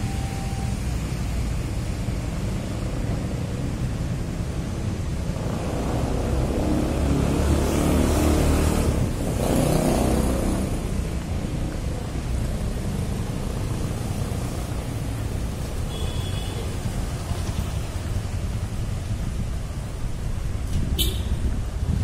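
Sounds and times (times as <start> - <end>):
low traffic hum: 0.0 - 22.0
motorbike revving by: 5.2 - 11.3.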